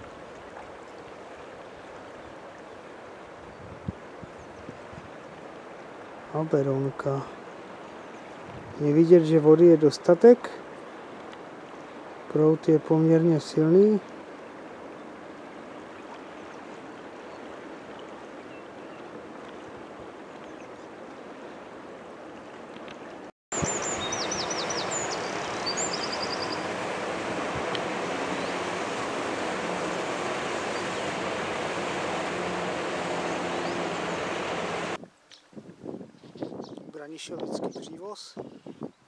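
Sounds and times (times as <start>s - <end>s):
river rushing: 0.0s - 35.0s
high bird chirps: 23.6s - 26.8s.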